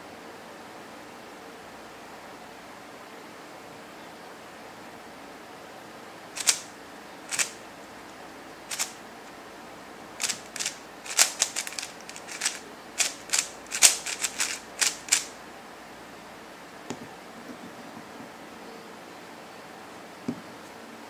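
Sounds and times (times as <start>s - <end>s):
puzzle cube clicking: 6.4s - 6.7s, 7.3s - 7.6s, 8.7s - 9.0s, 10.2s - 15.3s.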